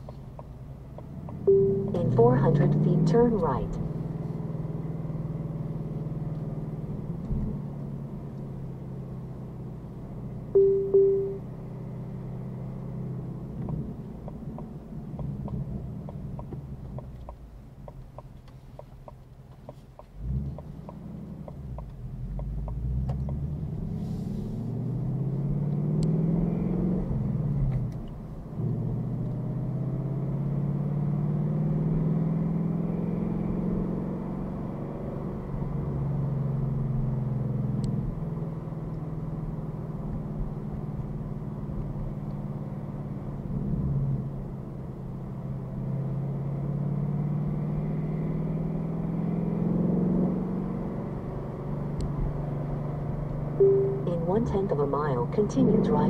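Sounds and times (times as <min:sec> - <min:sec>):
car engine driving: 0:00.0 - 0:56.0.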